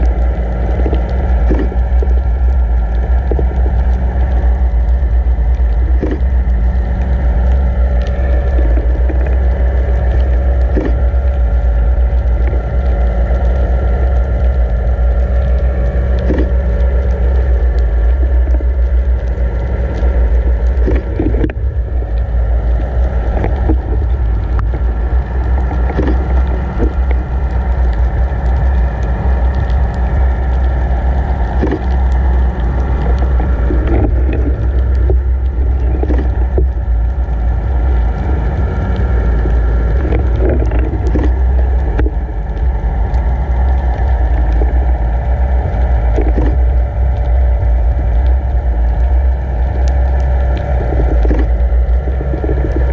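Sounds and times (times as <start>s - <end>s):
faint knocks and clicks: 0.0s - 4.9s, 5.5s - 11.5s, 12.1s - 37.3s, 38.1s - 45.0s, 45.6s - 52.9s
boat engine drone underwater: 0.0s - 52.9s
underwater water rushing: 0.0s - 52.9s.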